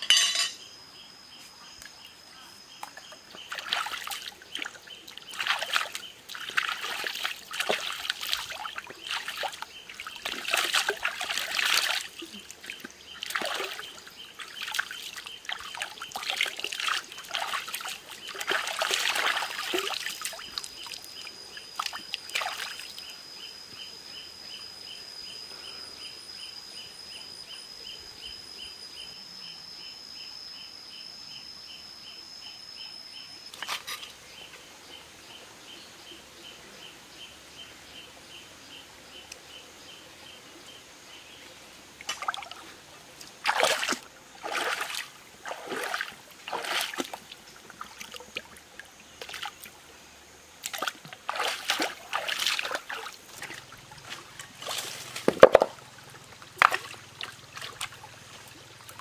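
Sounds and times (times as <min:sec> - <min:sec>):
water splashing: 0:03.4 - 0:21.1, 0:21.8 - 0:23.0, 0:42.0 - 0:49.8, 0:50.6 - 0:59.0.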